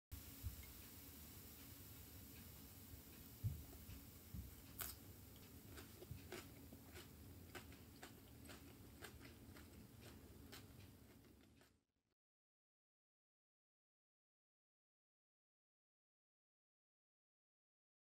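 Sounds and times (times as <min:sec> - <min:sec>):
low room hiss: 0:00.1 - 0:11.7
crunchy chewing: 0:03.6 - 0:11.8.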